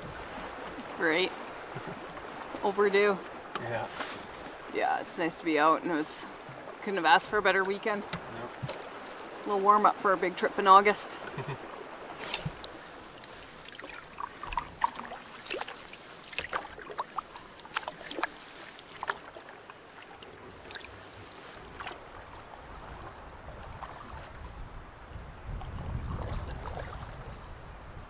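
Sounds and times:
canoe paddle strokes and drips: 0.0s - 28.0s.

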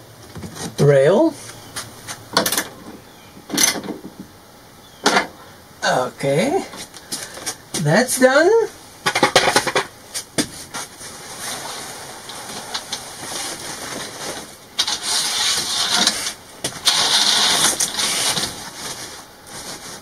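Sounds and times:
fabric curtain rustling: 10.7s - 20.0s.

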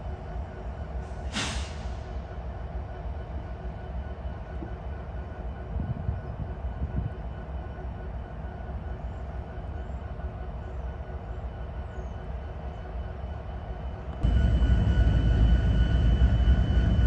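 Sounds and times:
diesel locomotives idling: 0.0s - 17.0s
air hiss: 1.2s - 2.2s.

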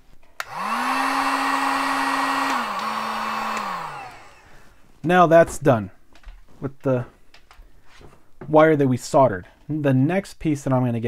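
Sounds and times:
heat gun switch click: 0.4s - 4.4s
heat gun fan blowing: 0.4s - 4.8s.

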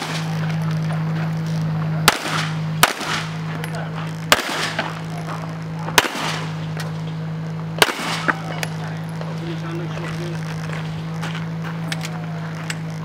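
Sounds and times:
pistol shots: 0.0s - 0.5s, 2.0s - 3.4s, 4.3s - 5.0s, 5.9s - 6.6s, 7.8s - 8.4s
steady low hum: 0.0s - 13.0s.

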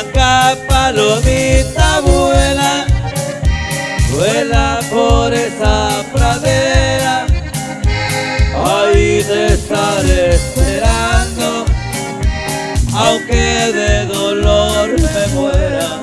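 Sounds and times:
accordion melody: 0.0s - 16.0s
bass: 0.0s - 16.0s
guitars: 0.0s - 16.0s
steady beat: 0.0s - 16.0s.

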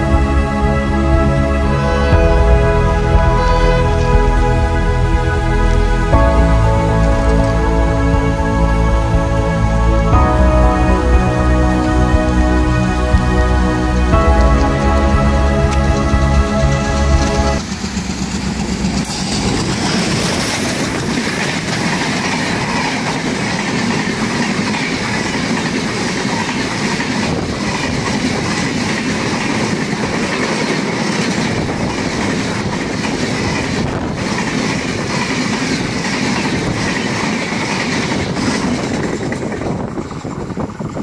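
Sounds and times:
train wheels rumbling on rails: 0.0s - 41.0s
train clickety-clack: 14.4s - 41.0s.

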